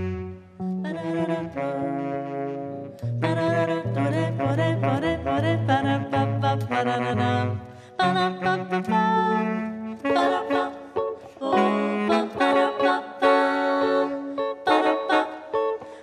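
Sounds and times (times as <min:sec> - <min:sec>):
bass notes: 0:00.0 - 0:02.0, 0:02.6 - 0:10.0
electric guitar chords: 0:00.0 - 0:16.0
saxophone melody: 0:00.0 - 0:16.0.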